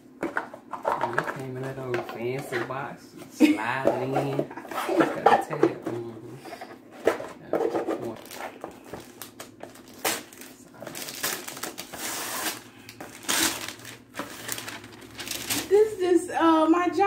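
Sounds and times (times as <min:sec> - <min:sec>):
wrapping paper tearing and crinkling: 0:08.1 - 0:15.8.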